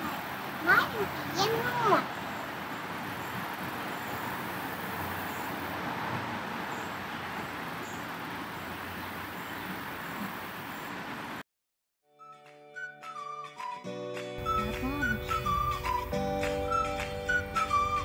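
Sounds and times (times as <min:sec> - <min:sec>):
outdoor background noise: 0:00.0 - 0:11.4
music with whistle-like melody: 0:12.1 - 0:18.0.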